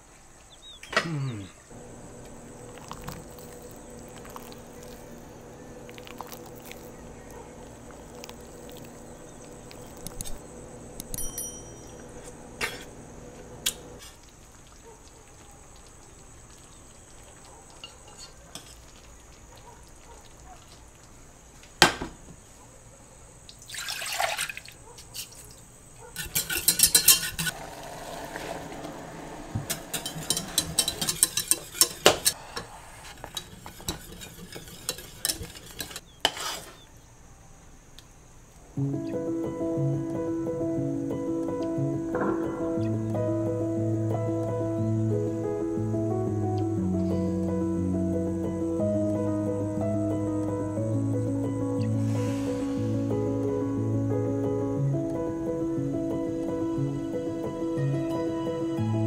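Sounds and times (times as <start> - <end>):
knife squishing soft meat: 2.7 - 10.5
metal clink against pan: 11.2 - 12.0
liquid splash: 23.6 - 24.8, 27.5 - 31.8
whisk rattling in metal pot: 26.2 - 27.6, 29.7 - 32.4, 33.3 - 36.1.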